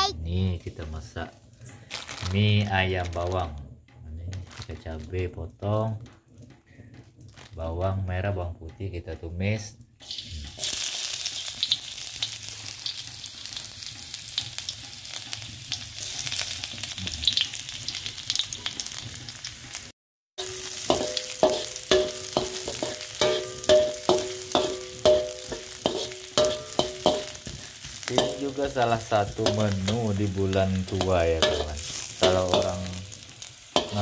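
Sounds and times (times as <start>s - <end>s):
metal spatula scraping wok: 10.0s - 19.8s, 20.4s - 34.0s
shallots sizzling in hot oil: 10.0s - 34.0s.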